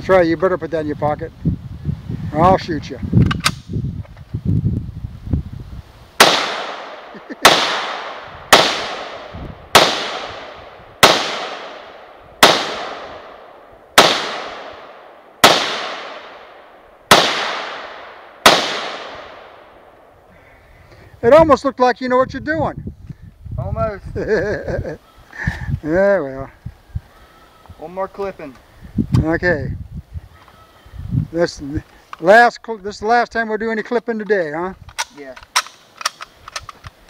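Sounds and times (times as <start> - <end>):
rifle clicks: 3.2 - 3.7, 34.9 - 37.0
rifle shots echoing: 6.2 - 20.0.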